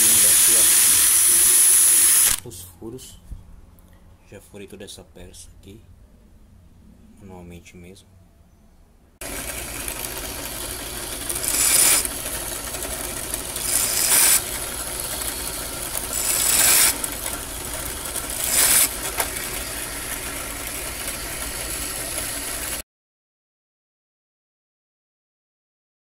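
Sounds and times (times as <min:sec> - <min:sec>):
drill press motor running: 0:00.0 - 0:02.4, 0:09.2 - 0:22.8.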